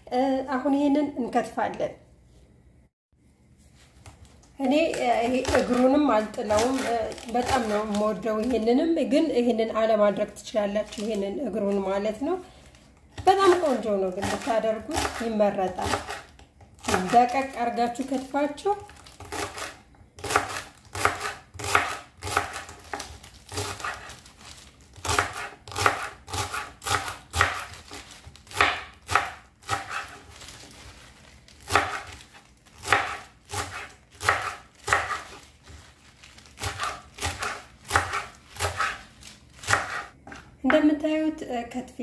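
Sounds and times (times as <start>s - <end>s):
knife chopping on wooden board: 19.2s - 24.1s, 25.0s - 27.8s, 28.5s - 30.2s, 31.6s - 32.2s, 32.8s - 35.4s, 36.6s - 39.0s, 39.6s - 40.8s.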